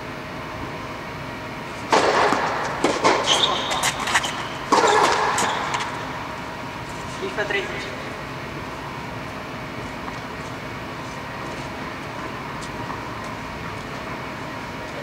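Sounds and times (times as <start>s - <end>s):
steady hum: 0.0s - 15.0s
tennis racket hitting ball: 1.8s - 6.0s
ball and shoe clicks: 1.9s - 6.0s, 11.4s - 14.2s.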